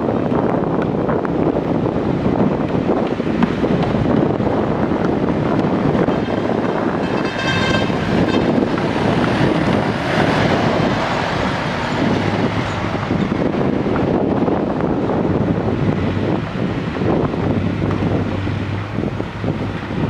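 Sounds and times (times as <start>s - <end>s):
wind noise on microphone: 0.0s - 20.0s
diesel engine running: 0.2s - 20.0s.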